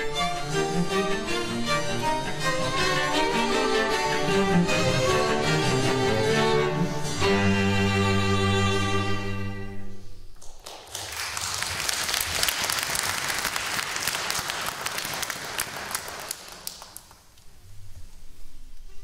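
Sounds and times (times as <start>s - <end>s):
audience applause: 10.4s - 17.3s.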